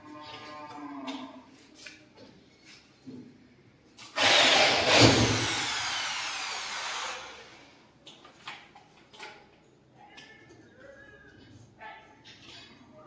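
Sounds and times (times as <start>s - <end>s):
electric drill motor whine: 4.2s - 7.4s.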